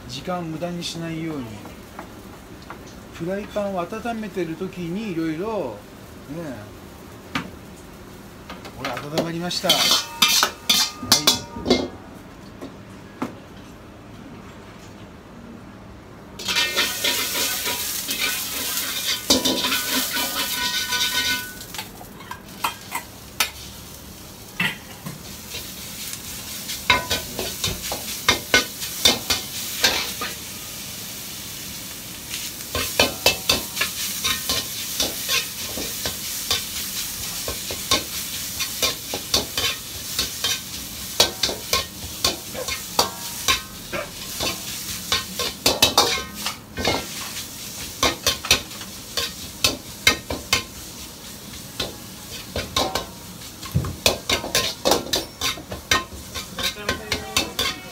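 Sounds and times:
food sizzling in a frying pan: 0.0 - 12.5, 16.4 - 57.9
metal spatula scraping a pan: 9.7 - 11.8, 16.4 - 21.6, 54.3 - 57.9.

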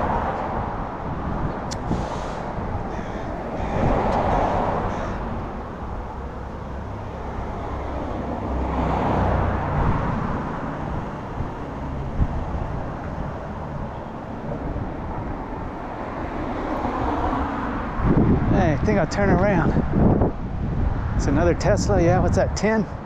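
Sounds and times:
car passing close: 0.0 - 21.4
street traffic: 0.0 - 23.0.

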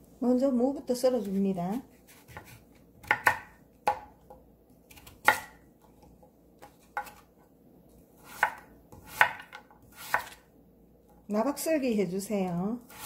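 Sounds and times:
knife cutting on wooden board: 1.3 - 4.0, 4.9 - 7.3, 8.2 - 10.4.

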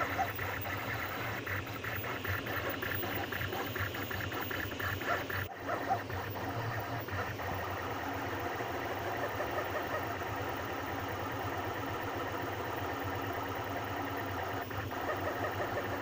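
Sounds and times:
stepper motors whirring: 0.0 - 16.0.

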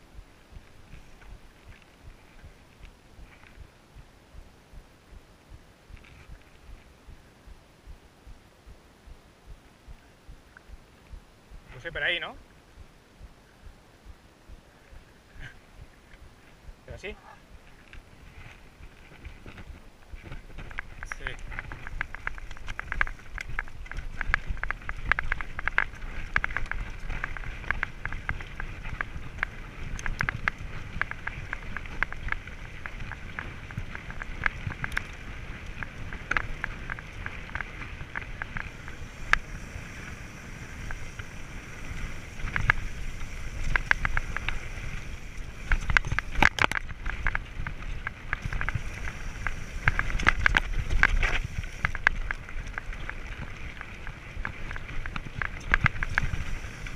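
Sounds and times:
wind rumble on microphone: 0.0 - 56.9
tyres crunching on stones: 17.7 - 56.9
bike clattering over bumps: 18.8 - 56.9.

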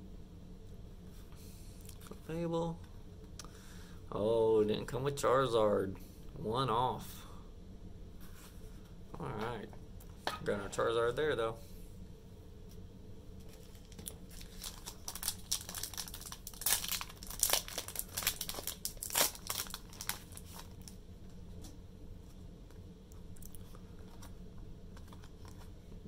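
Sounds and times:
foil wrapper crinkling and tearing: 13.5 - 21.0.

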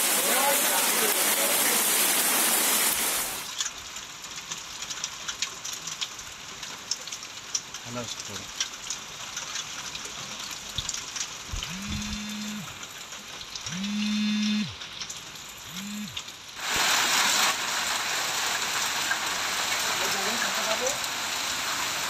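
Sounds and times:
heavy rain and hail hissing: 0.0 - 13.9, 14.7 - 22.0.

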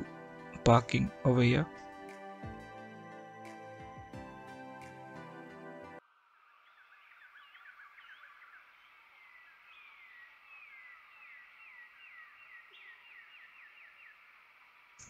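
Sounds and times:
birds chirping: 6.5 - 14.6.

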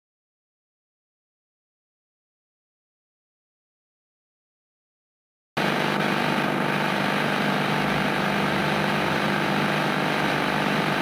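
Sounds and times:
loud hum with hiss: 5.6 - 11.0.

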